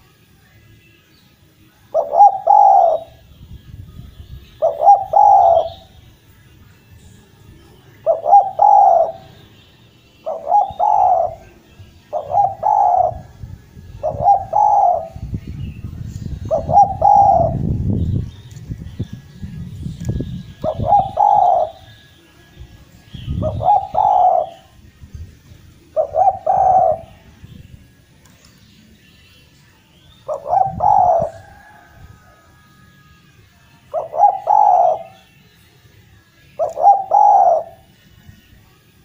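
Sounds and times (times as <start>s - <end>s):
dove cooing: 1.9s - 3.2s, 4.6s - 5.9s, 8.0s - 9.4s, 10.2s - 13.4s, 14.0s - 15.3s, 16.4s - 17.7s, 20.6s - 22.0s, 23.3s - 24.8s, 25.9s - 27.2s, 30.2s - 32.6s, 33.9s - 35.3s, 36.6s - 37.9s.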